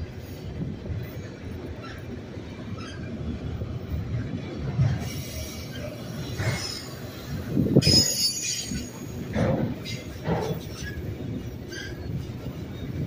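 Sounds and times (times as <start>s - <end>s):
train wheels rumbling on rails: 0.0s - 13.0s
metallic wheel squeal: 7.8s - 9.0s.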